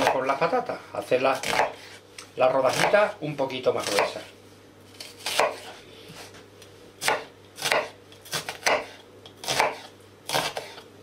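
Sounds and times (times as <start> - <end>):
knife slicing onion on board: 0.0 - 0.5, 1.2 - 2.0, 2.6 - 4.3, 4.9 - 10.9.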